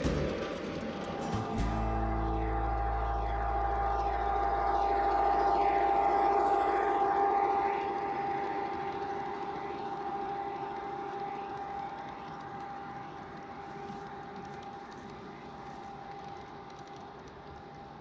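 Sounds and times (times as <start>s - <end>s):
freight cars rolling on track: 0.0s - 18.0s
model locomotive motor whining: 0.0s - 18.0s.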